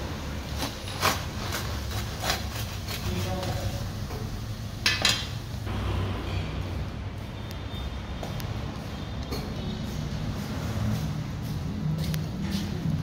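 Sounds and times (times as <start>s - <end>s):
kitchenware clinking and knocking: 4.8s - 5.4s.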